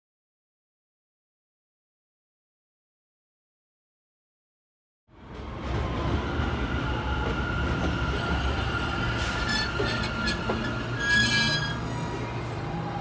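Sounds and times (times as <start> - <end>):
subway wheels rumbling on track: 5.1 - 13.0
high-pitched wheel squeal: 9.2 - 12.0.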